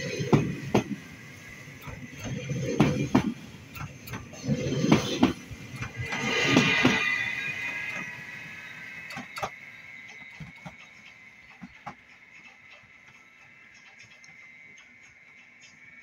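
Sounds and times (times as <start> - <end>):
electric train running: 0.0 - 16.0
wheels clicking over rails: 0.0 - 16.0
high whine: 4.0 - 11.5.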